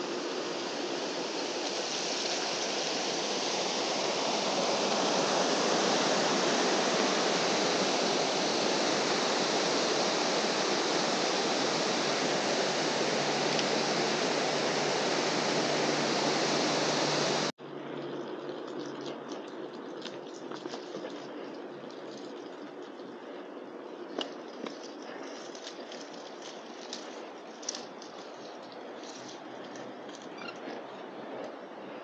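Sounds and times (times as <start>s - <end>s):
creek water rushing: 0.0s - 17.5s.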